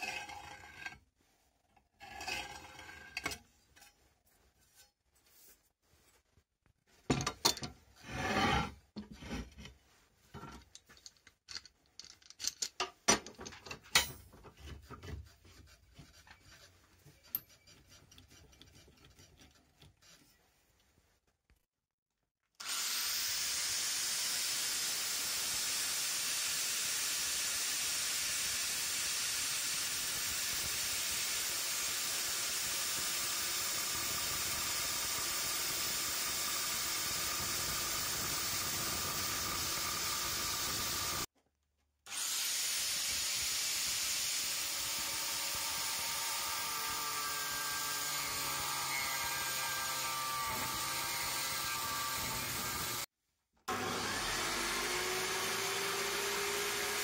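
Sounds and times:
angle grinder cutting steel: 22.6 - 41.3, 42.1 - 53.1, 53.7 - 57.0.

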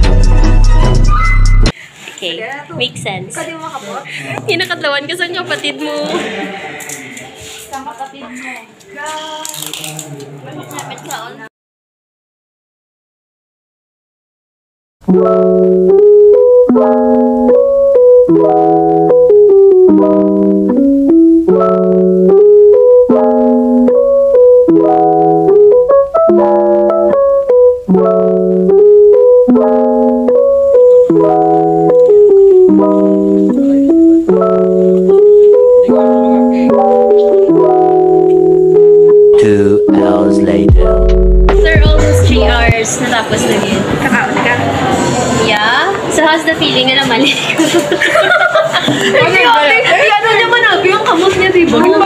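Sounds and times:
keyboard playing bright melody: 0.0 - 1.8, 15.0 - 43.1.

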